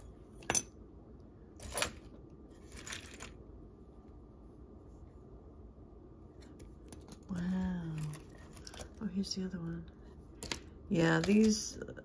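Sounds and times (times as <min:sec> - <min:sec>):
jewelry clinking and scraping: 0:01.5 - 0:03.5, 0:06.4 - 0:09.2.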